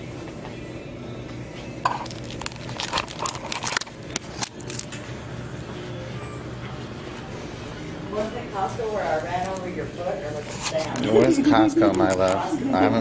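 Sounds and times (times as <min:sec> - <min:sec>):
hard objects clicking and clinking: 0:01.9 - 0:04.9.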